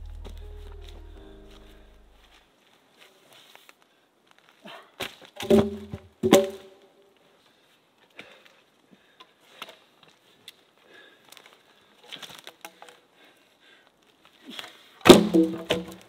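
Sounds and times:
logs clonking onto logs: 0:05.0 - 0:06.7, 0:15.0 - 0:16.0.

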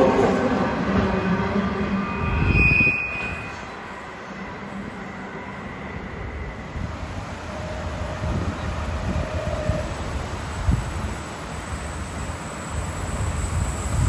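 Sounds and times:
freight train rolling over rails: 0:00.0 - 0:14.0
high wheel squeal: 0:02.0 - 0:06.7.

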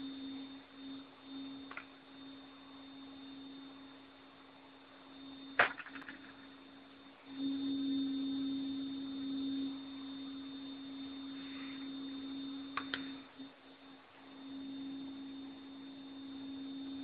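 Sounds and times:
low hum-like tone: 0:00.0 - 0:17.0.

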